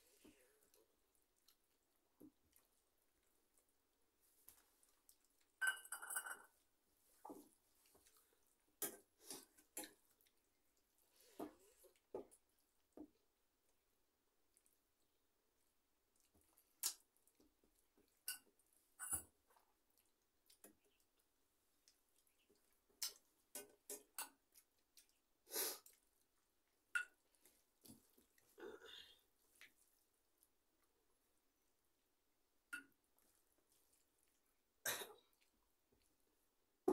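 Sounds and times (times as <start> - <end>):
chewing: 0.1 - 3.8, 4.4 - 5.6, 14.5 - 30.9
metal bowl clinking on plate: 5.6 - 6.6.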